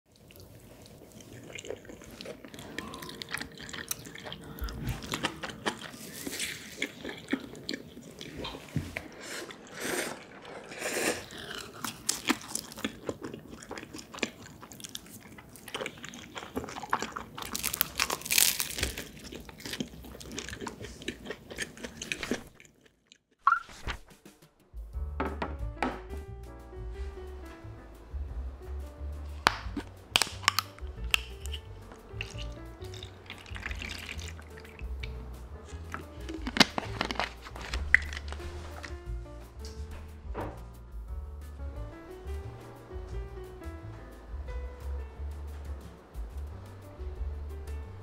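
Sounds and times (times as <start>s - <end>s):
chewing and crunching food: 0.1s - 23.4s, 29.4s - 39.0s.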